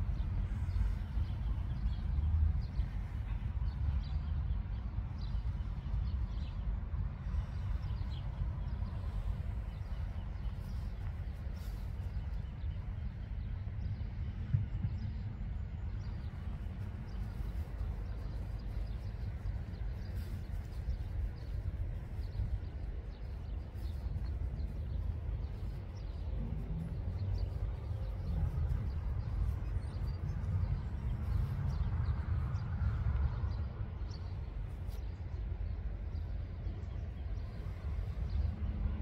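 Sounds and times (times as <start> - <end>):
steady deep rumble: 0.0 - 39.0.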